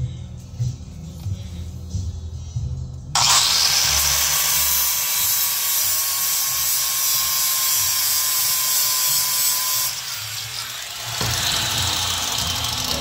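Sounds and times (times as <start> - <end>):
electric grinder on metal: 3.2 - 13.0.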